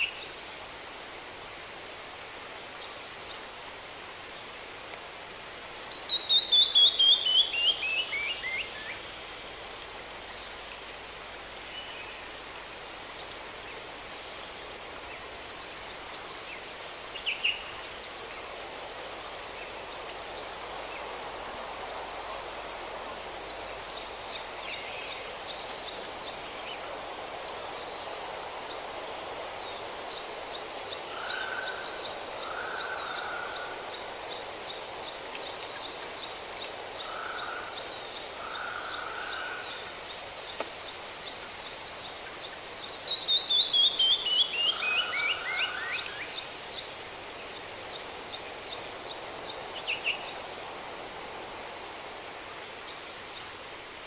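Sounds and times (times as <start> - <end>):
loud high-pitched insect buzz: 15.8 - 28.8.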